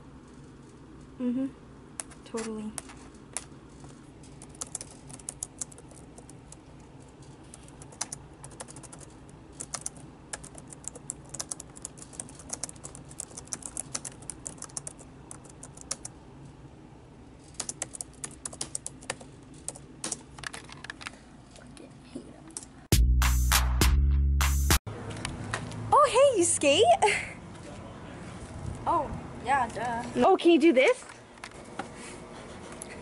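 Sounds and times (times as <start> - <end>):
typing on computer keyboard: 4.3 - 6.7, 7.4 - 16.2, 17.5 - 21.2.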